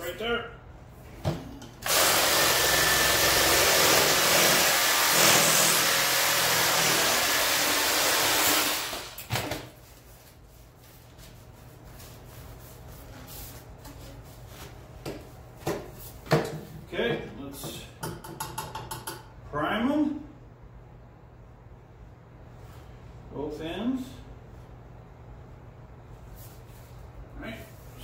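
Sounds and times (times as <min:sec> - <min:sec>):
power saw cutting pipe: 0:01.8 - 0:09.2.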